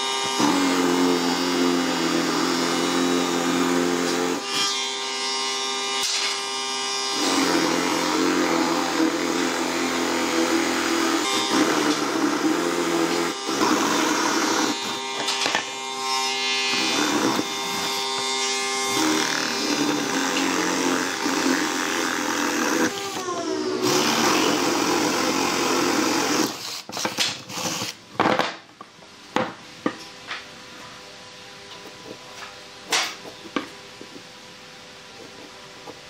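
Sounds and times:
cordless drill boring through wood: 0.0 - 4.6, 6.7 - 28.0.

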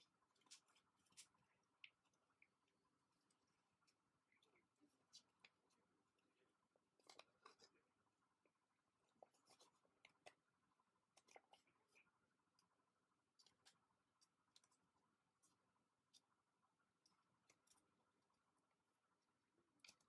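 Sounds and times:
paper crinkling while folded: 0.0 - 8.0, 9.0 - 16.4.

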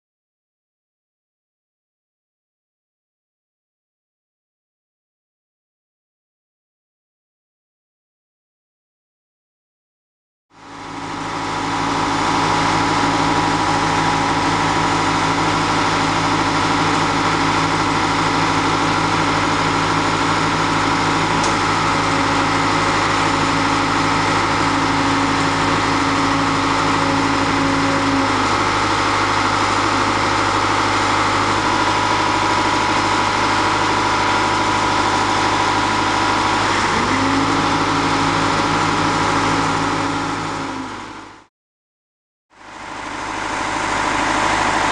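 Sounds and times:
heavy diesel engine running: 10.5 - 41.5, 42.5 - 44.9.

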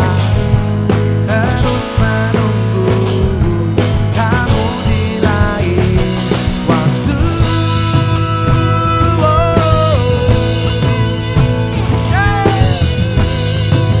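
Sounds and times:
band playing pop-rock ballad: 0.0 - 14.0.

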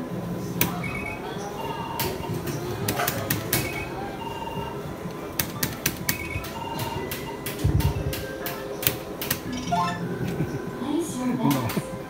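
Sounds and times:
bingo machine clicks: 5.4 - 9.6
short electronic beeps: 9.5 - 10.2.

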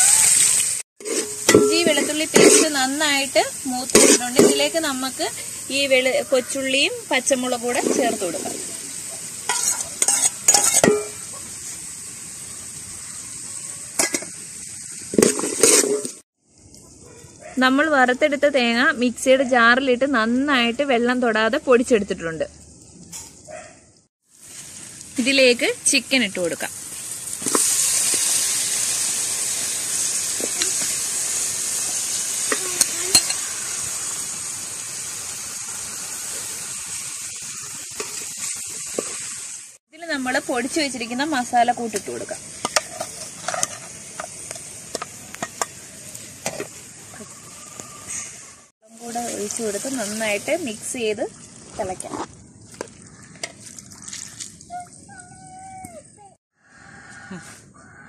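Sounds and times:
frying in hot oil sizzle: 0.0 - 54.1
bowl and ladle clattering: 1.0 - 2.8, 9.5 - 11.3, 15.1 - 16.2
ladle scraping pan: 1.0 - 2.8, 3.9 - 4.8, 9.5 - 11.2, 15.2 - 16.2, 42.0 - 45.8.

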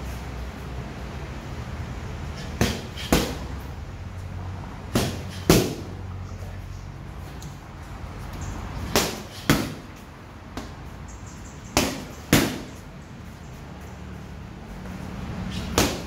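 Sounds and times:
boxing gloves hitting pads: 2.4 - 3.6, 4.8 - 6.0, 8.8 - 10.8, 11.7 - 12.8, 14.8 - 16.0.

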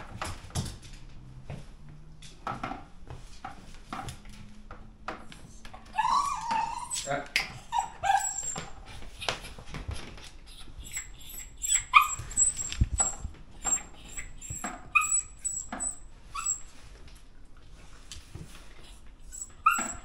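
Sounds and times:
dog yipping and whimpering: 5.8 - 9.6, 10.5 - 16.8, 19.2 - 20.0.

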